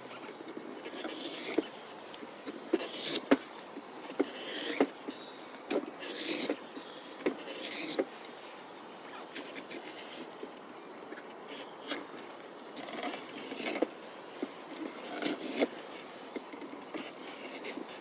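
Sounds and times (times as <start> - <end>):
chisel scraping wood: 0.8 - 1.7, 2.7 - 3.4, 4.0 - 5.0, 5.7 - 6.6, 7.2 - 8.1, 12.8 - 13.9, 14.7 - 17.9.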